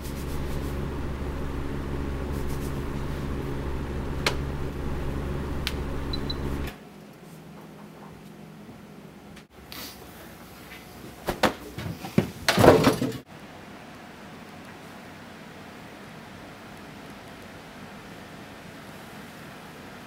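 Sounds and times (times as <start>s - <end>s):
electrical appliance hum: 0.0s - 6.8s.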